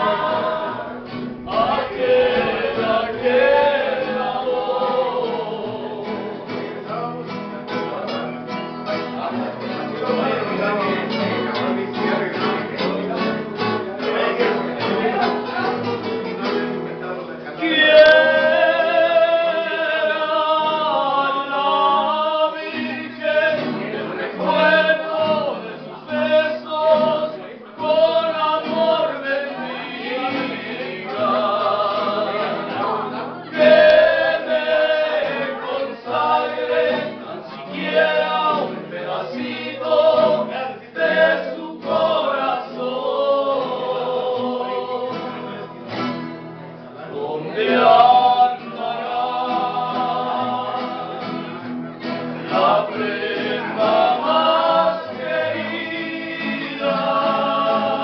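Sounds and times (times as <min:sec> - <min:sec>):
men singing together: 0:00.0 - 0:06.9, 0:17.5 - 0:45.7, 0:47.0 - 0:58.0
strummed acoustic guitars: 0:00.0 - 0:58.0.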